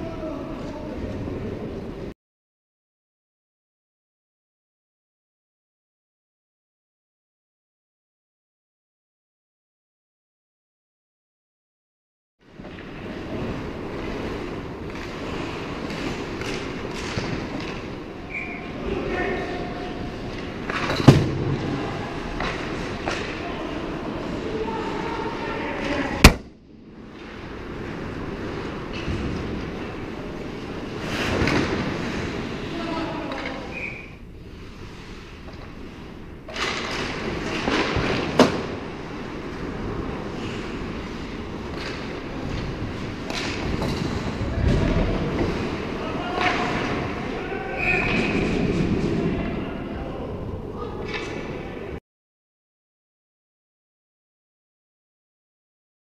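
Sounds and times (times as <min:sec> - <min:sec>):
hockey sticks and puck clacking: 0:15.8 - 0:18.6, 0:41.7 - 0:44.2, 0:46.3 - 0:47.0.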